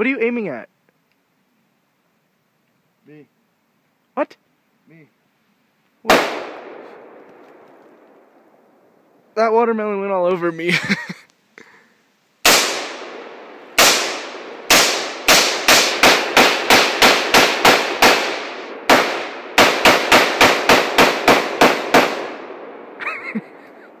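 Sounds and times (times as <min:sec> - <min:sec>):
rifle shots with echo: 0:06.1 - 0:08.7, 0:12.4 - 0:23.0.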